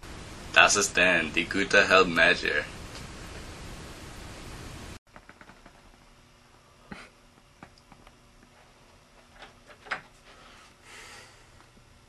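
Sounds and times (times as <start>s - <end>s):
faint knocks and clicks: 5.1s - 6.0s.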